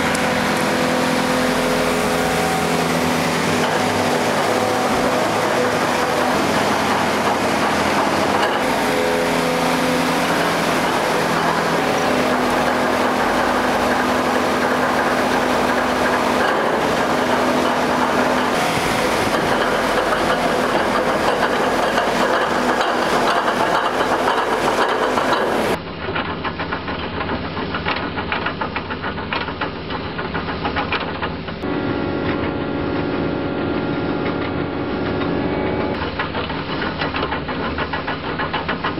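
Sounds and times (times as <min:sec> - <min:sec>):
screening bucket sifting compost: 0:00.0 - 0:25.8
excavator engine and hydraulics: 0:00.0 - 0:38.9.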